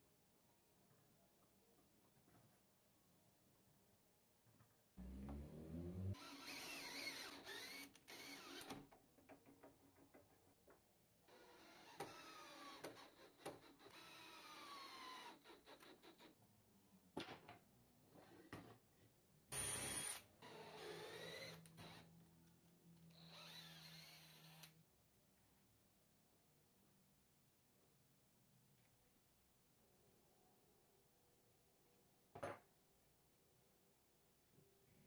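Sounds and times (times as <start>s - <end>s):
electric drill whining: 6.2s - 8.8s, 23.2s - 24.7s.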